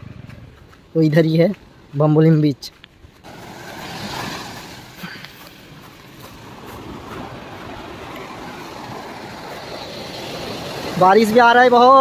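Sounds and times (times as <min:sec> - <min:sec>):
sea waves breaking: 0:03.2 - 0:12.0
heavy rain falling: 0:03.3 - 0:12.0.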